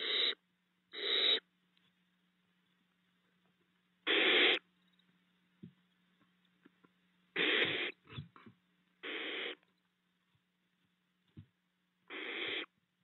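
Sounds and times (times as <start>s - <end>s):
owlets hissing calls: 0.0s - 1.5s, 4.0s - 4.6s, 7.3s - 8.1s, 9.0s - 9.6s, 12.1s - 12.7s.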